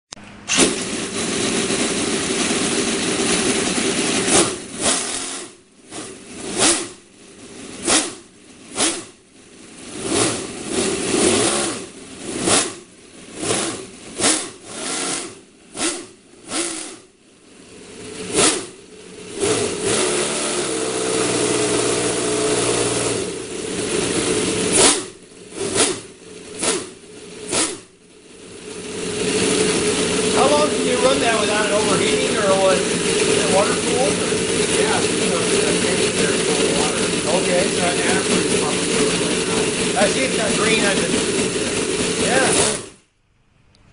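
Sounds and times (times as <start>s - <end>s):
model engine idling and revving: 0.1s - 43.1s.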